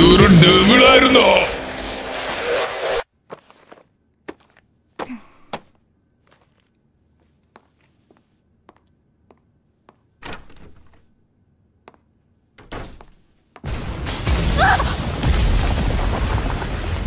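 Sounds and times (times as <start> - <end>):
light footsteps: 3.2 - 10.2
door thunking: 10.2 - 11.1, 12.6 - 13.2
wall crashing and rumbling: 13.7 - 17.0.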